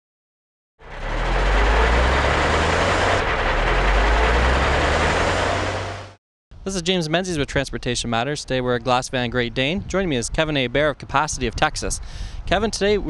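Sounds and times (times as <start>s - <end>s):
heavy truck engine running: 0.8s - 6.2s.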